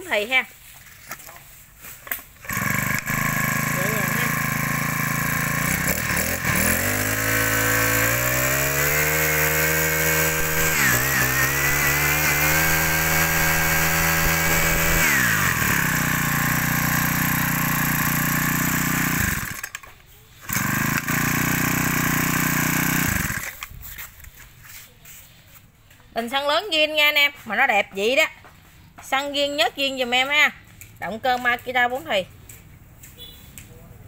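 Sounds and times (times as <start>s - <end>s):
brush cutter engine running: 2.0s - 24.3s.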